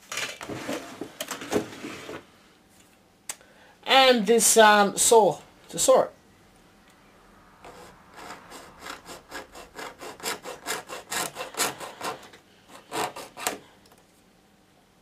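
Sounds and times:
hand saw cutting plastic: 7.7s - 13.6s.

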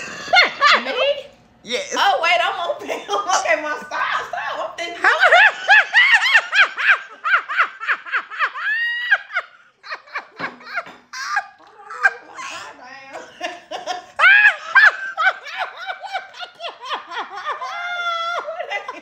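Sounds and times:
woman laughing hard: 5.0s - 19.0s.

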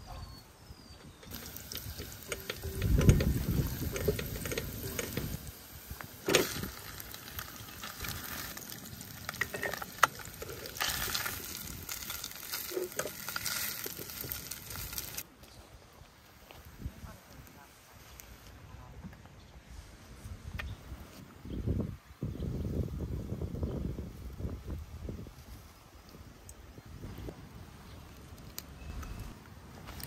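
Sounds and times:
food sizzling in a pan: 1.3s - 15.2s
utensil stirring and scraping: 6.3s - 15.2s.

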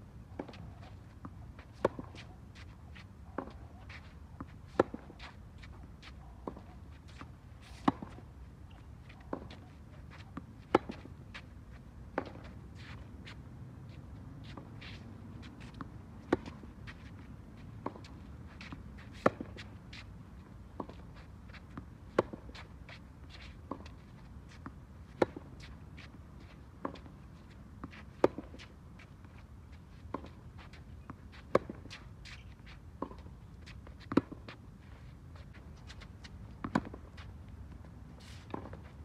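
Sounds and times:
racket striking tennis ball: 1.6s - 2.3s, 4.7s - 5.3s, 10.6s - 11.1s, 27.9s - 28.6s.

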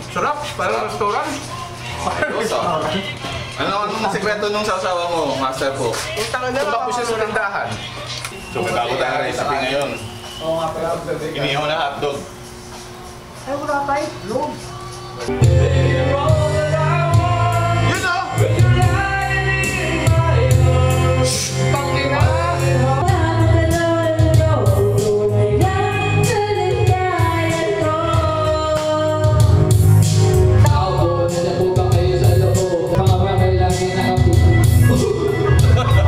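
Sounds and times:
person singing: 14.7s - 36.0s
backing track with heavy bass: 15.2s - 36.0s.

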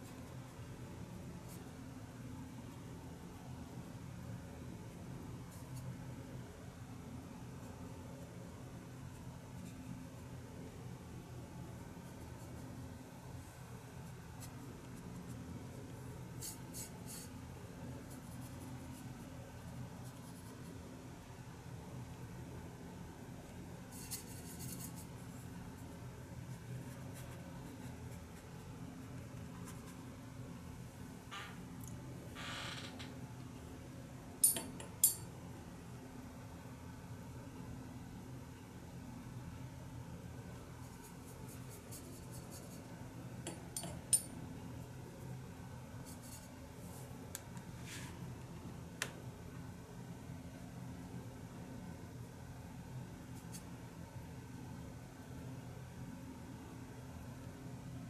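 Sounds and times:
paintbrush brushing on paper: 0.0s - 1.9s, 8.9s - 10.4s, 11.9s - 21.0s, 23.8s - 30.4s, 40.6s - 43.0s, 46.0s - 47.2s, 53.2s - 53.8s
steady low hum: 0.0s - 58.0s.

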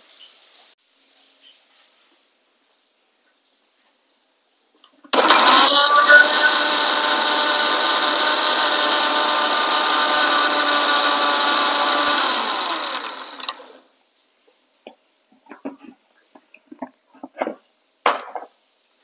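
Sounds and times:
mixer grinder whining: 5.1s - 13.8s.

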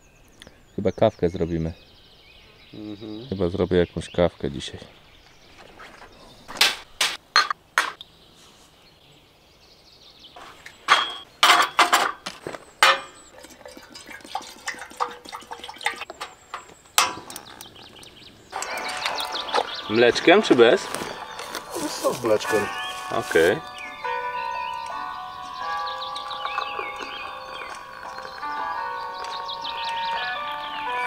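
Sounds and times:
mugs and spoons clinking: 10.9s - 17.7s.

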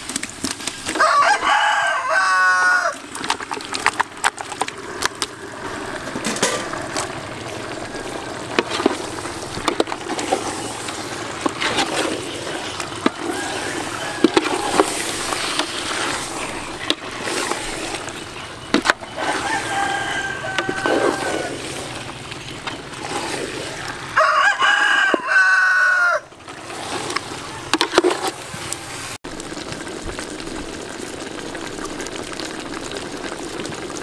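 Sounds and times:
utensil scraping pot: 2.9s - 29.2s
meat sliding wetly into pot: 3.0s - 24.2s.

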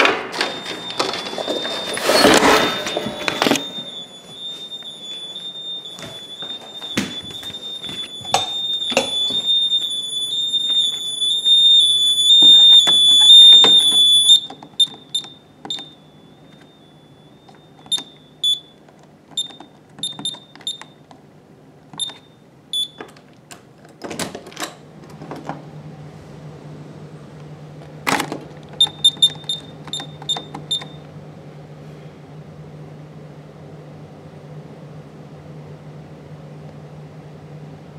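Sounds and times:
high alarm tone: 0.3s - 18.8s, 28.8s - 31.0s
keypad key-press beeps: 0.4s - 18.8s, 19.4s - 21.0s, 22.0s - 23.1s, 28.8s - 31.0s.

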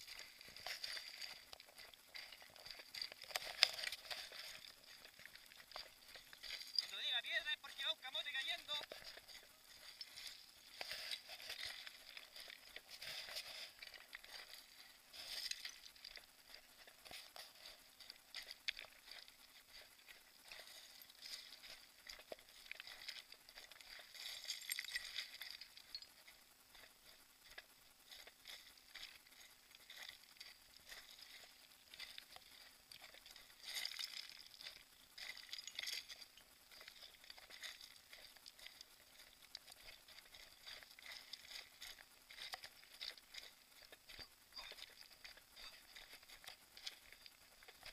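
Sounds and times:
stones clinking: 0.0s - 7.0s, 20.4s - 26.8s, 33.5s - 47.9s
footsteps crunching on scree: 0.0s - 47.9s.

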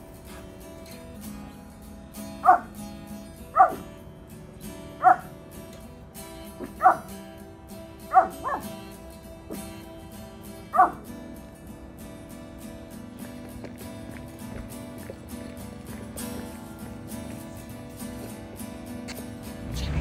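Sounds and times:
small dog barking: 2.4s - 2.8s, 3.5s - 3.9s, 5.0s - 5.4s, 6.6s - 7.2s, 8.0s - 8.9s, 10.6s - 11.1s.

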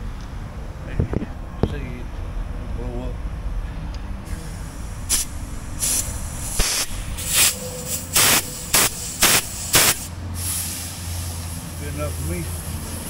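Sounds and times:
compressed air hissing blasts: 4.3s - 13.0s.

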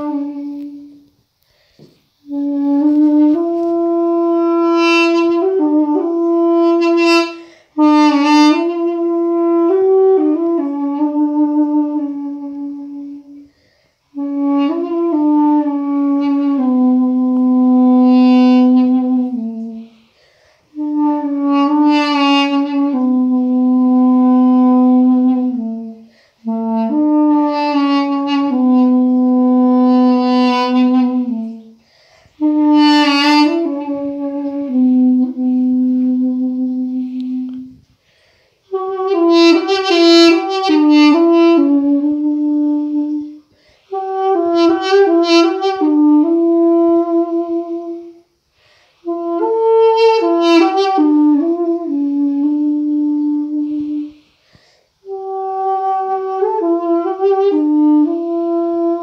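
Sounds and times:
duduk slow melody: 0.0s - 1.0s, 2.3s - 13.5s, 14.2s - 19.9s, 32.4s - 37.8s.

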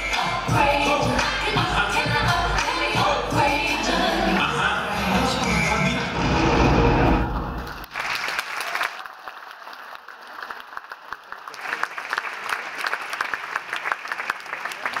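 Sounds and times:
bass-heavy dance music: 0.0s - 6.2s
audience clapping: 7.6s - 15.0s.

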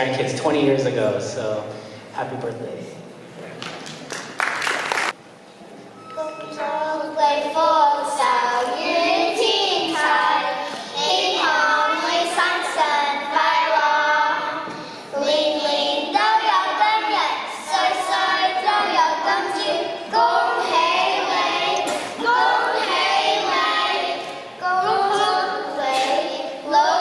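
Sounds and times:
children's choir singing: 6.2s - 27.0s.

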